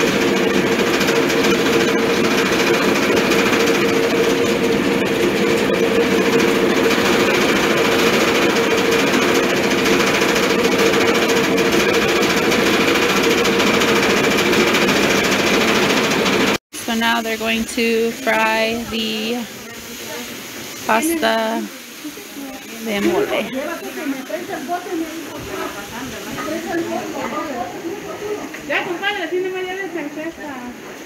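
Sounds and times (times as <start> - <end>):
grinding mill drone: 0.0 - 19.6.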